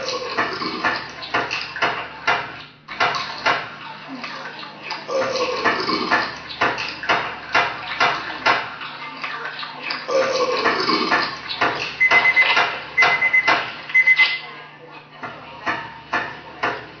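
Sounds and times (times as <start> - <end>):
high beeping tone: 12.0 - 14.4.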